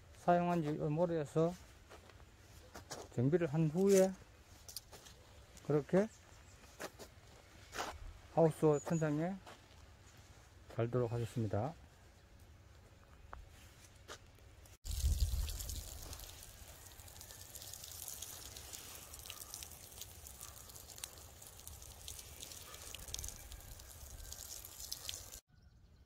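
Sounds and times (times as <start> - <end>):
water jet spraying from hose: 14.9 - 25.4.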